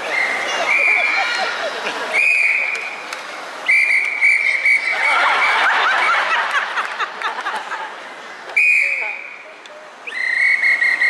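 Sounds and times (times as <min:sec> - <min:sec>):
audience laughing and calling out: 0:00.0 - 0:03.1, 0:04.4 - 0:08.6
whistle blast: 0:02.2 - 0:03.0, 0:03.6 - 0:05.1, 0:08.6 - 0:09.4, 0:10.0 - 0:11.0.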